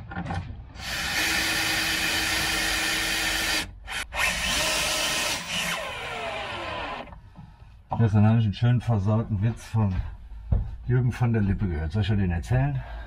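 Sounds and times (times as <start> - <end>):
cordless drill driving screws: 0.8 - 7.1.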